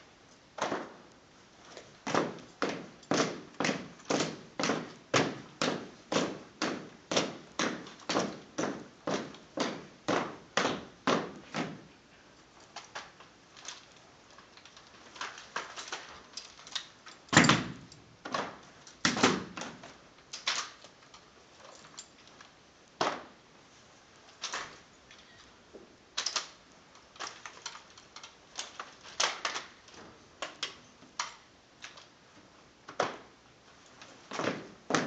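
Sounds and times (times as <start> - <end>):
rifle clacks: 14.6 - 21.2.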